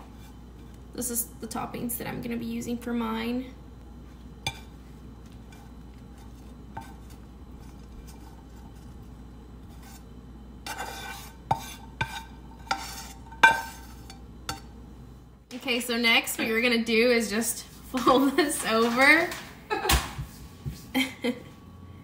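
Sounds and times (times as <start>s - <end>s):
spatula scraping frying pan: 5.4s - 14.7s.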